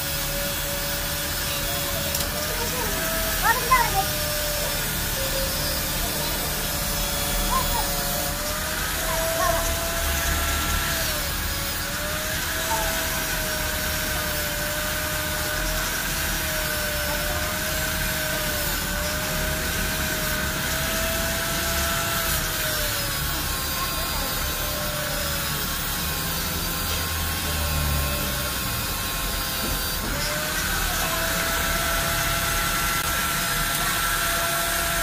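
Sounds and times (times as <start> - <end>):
power tool motor whine: 0.0 - 35.0.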